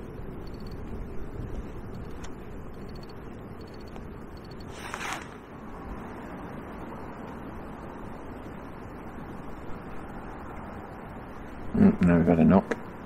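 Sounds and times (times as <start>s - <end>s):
low outdoor rumble: 0.0s - 13.0s
brief rustle: 4.7s - 5.4s.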